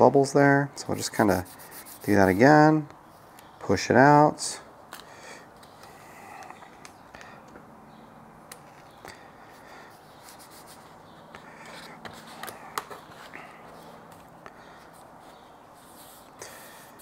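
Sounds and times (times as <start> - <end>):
hands rubbing vinyl skin: 1.0 - 2.5, 10.0 - 14.3, 14.9 - 17.0.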